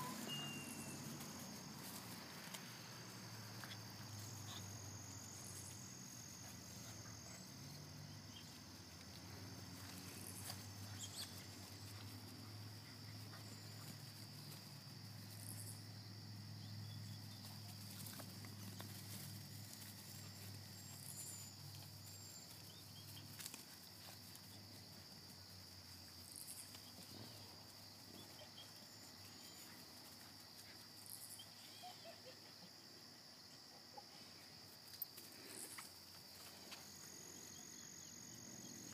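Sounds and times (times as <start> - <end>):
puppies scampering on grass: 0.0 - 15.7, 17.1 - 31.4
insects chorus: 0.0 - 38.9.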